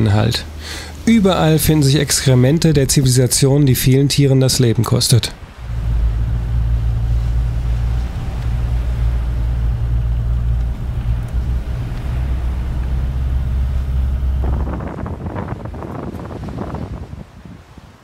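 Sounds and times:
vehicle engine and road rumble: 0.0s - 18.0s
wind noise: 5.3s - 18.0s.

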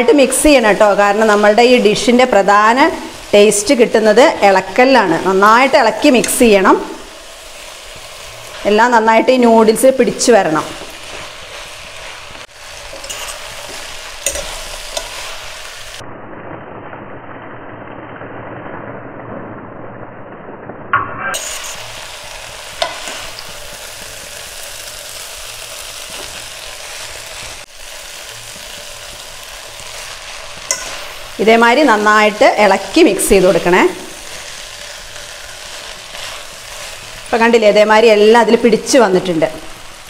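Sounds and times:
noodles sizzling in a hot pot: 0.0s - 16.5s, 21.3s - 40.0s
spatula and fork stirring: 10.6s - 15.6s, 22.7s - 24.7s, 28.1s - 31.4s.

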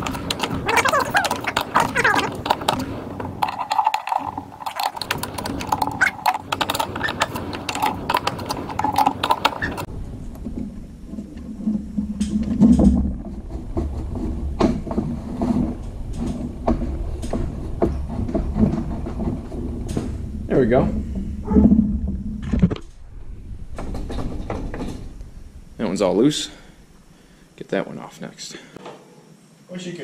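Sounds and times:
screwdrivers clicking and scraping: 0.0s - 9.9s
low rumble: 9.8s - 27.6s.

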